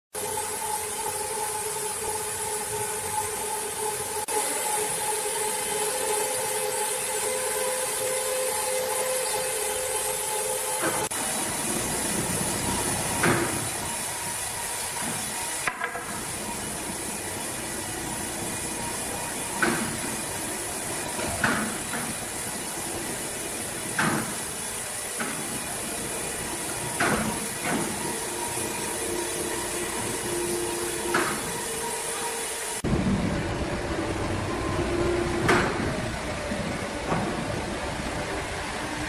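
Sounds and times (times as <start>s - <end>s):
crane mechanical hum: 0.2s - 39.0s.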